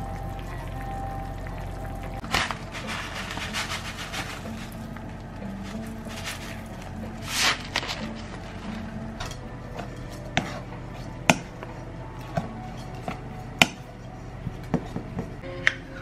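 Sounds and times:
plastic paddle scraping metal bowl: 2.2s - 4.9s, 5.5s - 15.0s.

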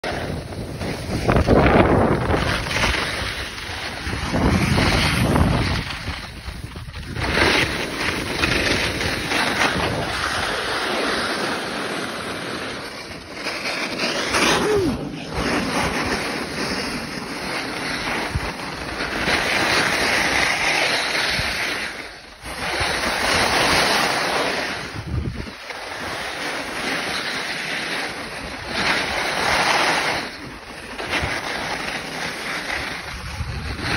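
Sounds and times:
wind buffeting microphone: 0.0s - 10.9s, 14.2s - 26.8s, 32.3s - 33.9s
skis scraping over snow: 0.0s - 33.9s.

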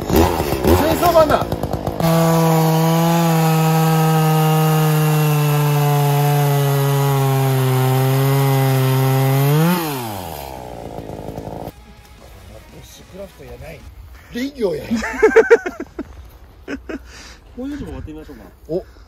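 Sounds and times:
chainsaw cutting wood: 0.0s - 14.0s.

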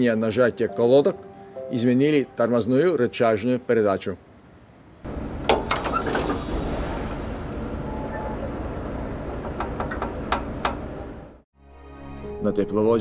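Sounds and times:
compressed air hissing: 5.6s - 7.7s.

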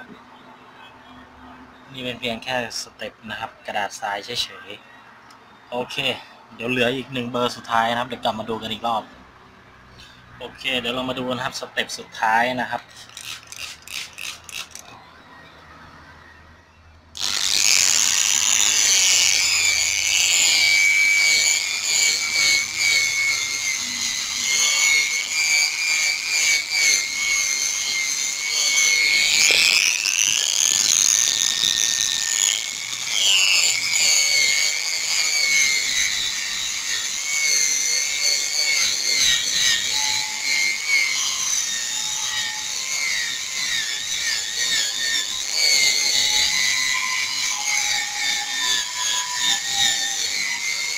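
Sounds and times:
electric sander whining: 17.2s - 50.9s.

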